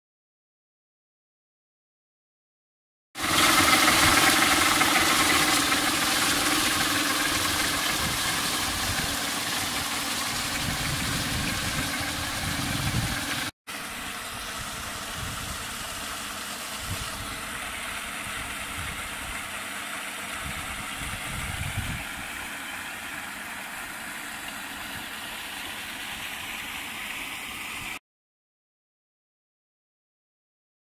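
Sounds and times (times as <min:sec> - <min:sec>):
electric motor hum: 0:03.2 - 0:28.0
paddle wheel splashing water: 0:03.2 - 0:28.0.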